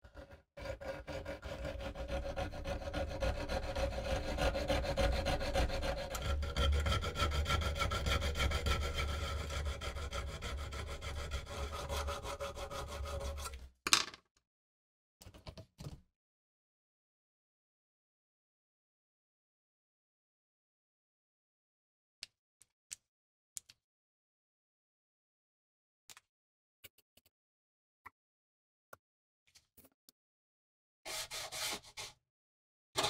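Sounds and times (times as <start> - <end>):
file rasping on saw teeth: 0.0 - 13.6, 31.1 - 32.1.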